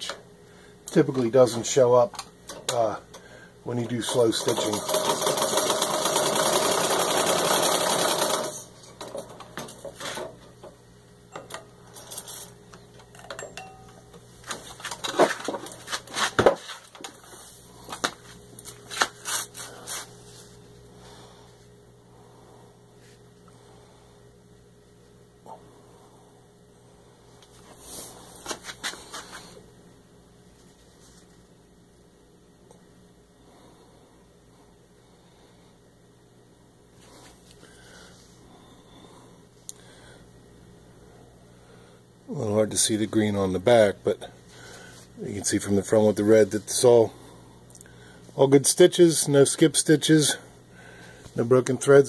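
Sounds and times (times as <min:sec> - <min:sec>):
sewing machine running: 0:04.0 - 0:08.7.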